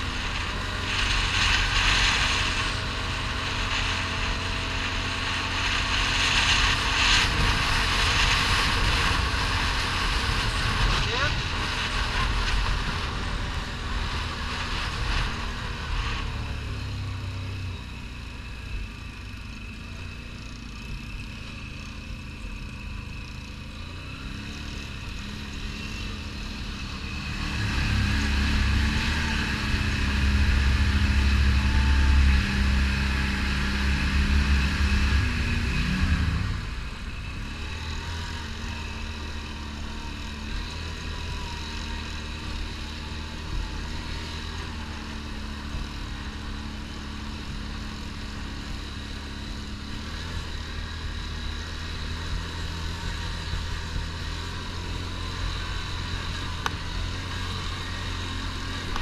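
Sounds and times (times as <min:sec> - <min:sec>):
quad bike engine running: 0:00.0 - 0:59.0.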